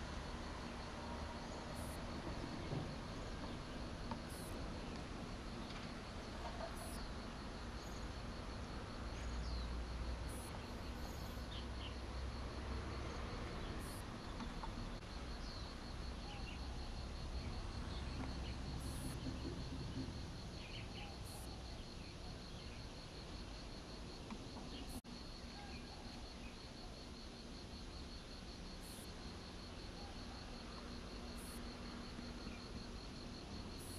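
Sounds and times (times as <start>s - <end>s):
insect trilling: 6.4s - 7.1s, 10.2s - 11.9s.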